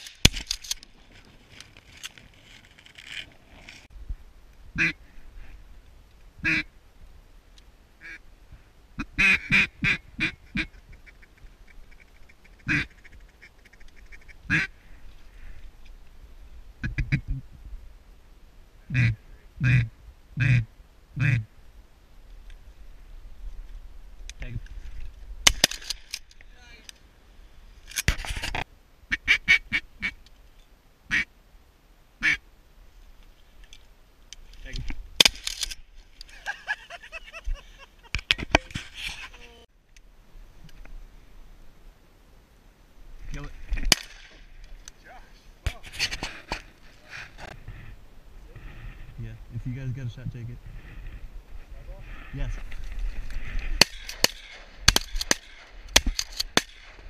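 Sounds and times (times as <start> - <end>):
duck call quacks: 4.8 - 5.0, 6.4 - 6.7, 9.0 - 10.8, 12.6 - 13.0, 14.1 - 14.7, 18.9 - 21.5, 29.1 - 30.2, 31.1 - 31.3, 32.2 - 32.4.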